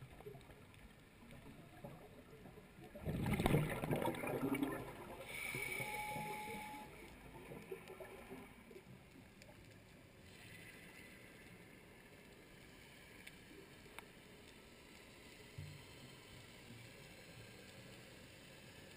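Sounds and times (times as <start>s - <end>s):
underwater air bubbles gurgling: 0.0s - 5.6s, 7.0s - 9.0s.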